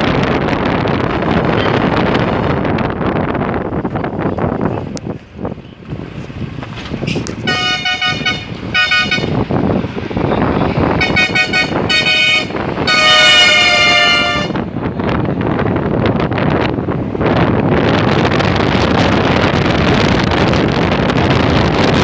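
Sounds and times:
vehicle driving rumble: 0:00.0 - 0:22.0
vehicle horn honking: 0:07.4 - 0:09.4, 0:11.0 - 0:14.6.

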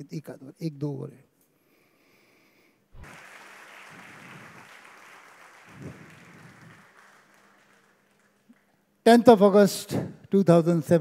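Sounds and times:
faint applause: 0:03.0 - 0:08.8.

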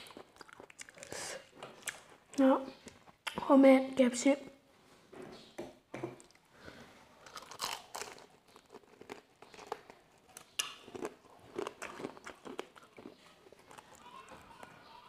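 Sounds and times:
crunching fried chicken: 0:00.0 - 0:02.4, 0:07.2 - 0:15.0
chewing: 0:00.0 - 0:03.4, 0:07.2 - 0:15.0.

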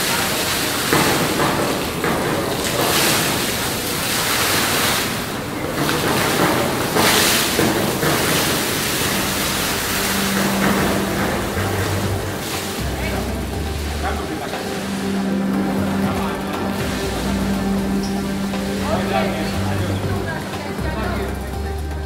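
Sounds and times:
hot spring water jet splashing: 0:00.0 - 0:22.0.

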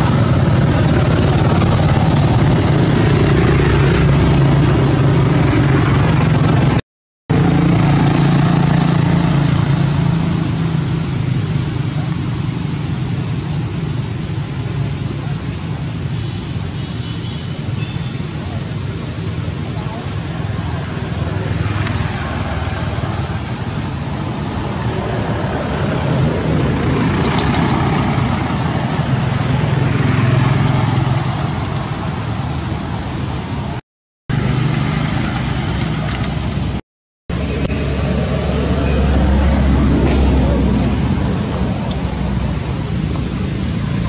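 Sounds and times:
loud outdoor rumble: 0:00.0 - 0:44.0.

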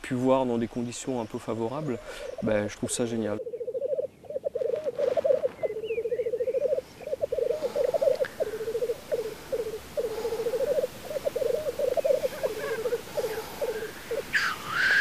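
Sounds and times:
grouse bubbling trills: 0:03.4 - 0:14.6.

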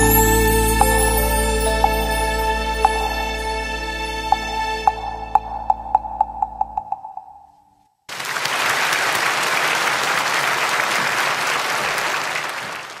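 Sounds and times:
music with ticking beat: 0:00.0 - 0:07.6
audience applause: 0:08.1 - 0:13.0.

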